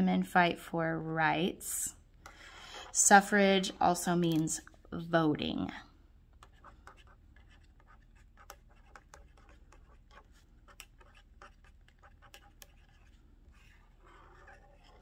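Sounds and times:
pen scratching on paper: 6.4 - 15.0.

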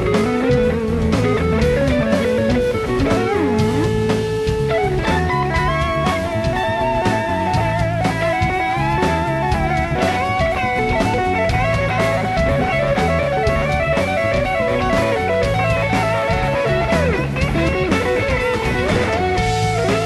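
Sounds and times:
bass guitar: 0.0 - 20.0
drum kit: 0.0 - 20.0
electric guitar solo: 0.0 - 20.0.

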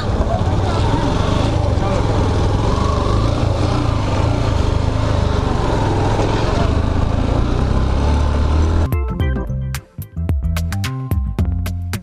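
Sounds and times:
motorcycle engine running: 0.0 - 8.9
road and wind rush: 0.0 - 8.9.

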